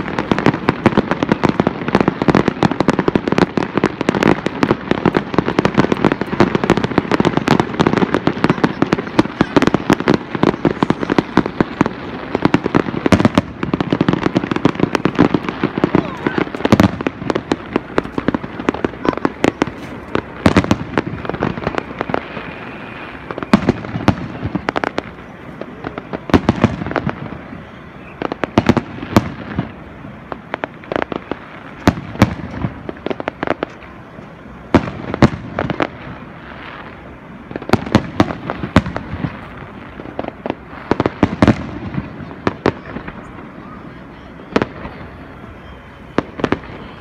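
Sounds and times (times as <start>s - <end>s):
fireworks bursting with bangs: 0.0s - 47.0s
fireworks crackling: 0.0s - 47.0s.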